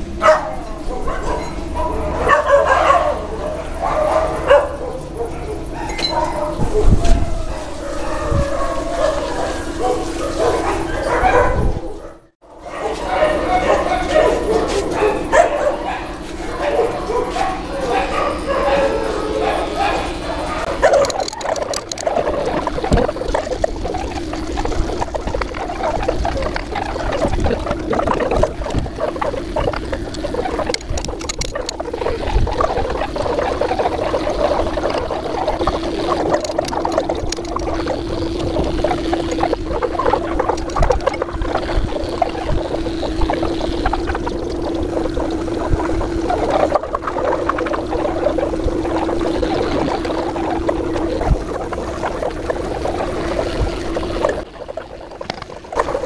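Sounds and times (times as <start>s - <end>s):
electric clipper buzzing: 13.2s - 46.3s.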